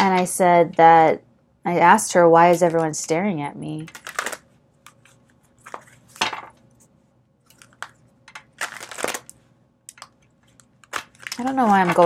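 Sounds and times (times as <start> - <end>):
cards being shuffled: 3.9 - 6.5, 9.9 - 12.0.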